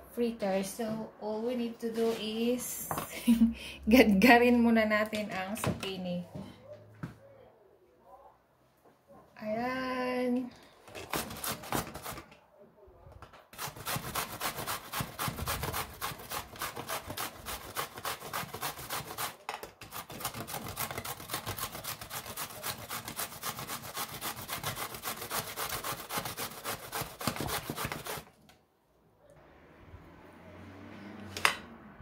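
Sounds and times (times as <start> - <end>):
vegetable scraping on metal grater: 11.0 - 12.2, 13.6 - 28.3.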